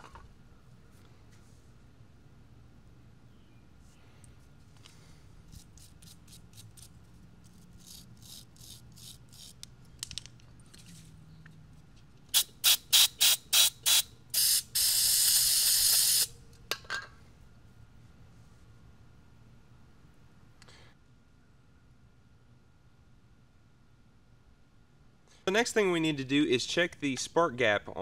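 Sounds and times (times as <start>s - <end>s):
aerosol spray spurts: 12.3s - 16.3s.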